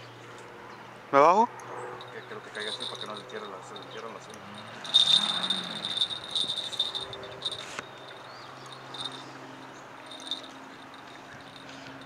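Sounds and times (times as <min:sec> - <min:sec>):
high chirping tone: 0:02.0 - 0:09.3.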